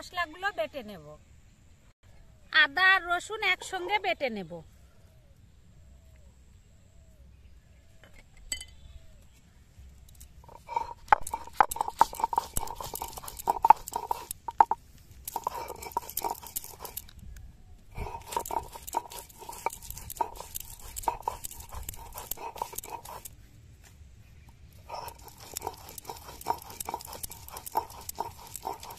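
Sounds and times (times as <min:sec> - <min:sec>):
stone grinding on stone slab: 0:10.4 - 0:17.1, 0:17.9 - 0:23.3, 0:24.8 - 0:28.9.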